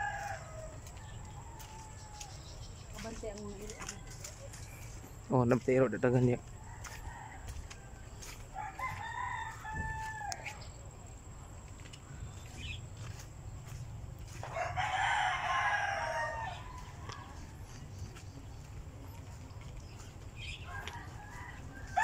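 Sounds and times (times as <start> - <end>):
rooster crowing: 0.0 - 2.5, 6.6 - 10.7, 14.3 - 17.8, 20.4 - 22.0.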